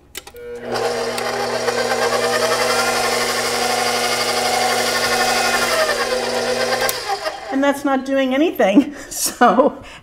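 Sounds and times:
stand mixer motor humming: 0.4 - 7.5.

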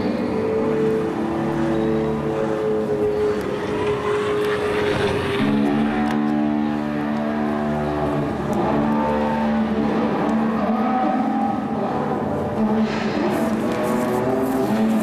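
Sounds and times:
low sustained drone tones: 0.0 - 15.0
rough noisy bed: 0.0 - 15.0.

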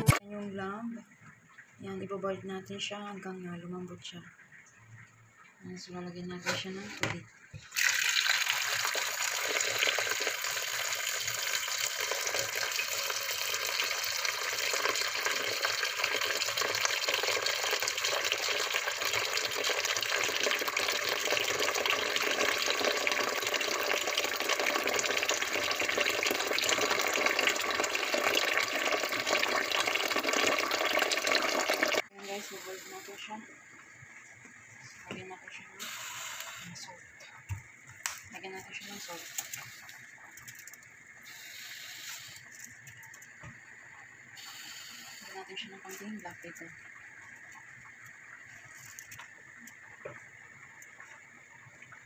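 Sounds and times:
tap water running into metal pot: 7.1 - 32.1.

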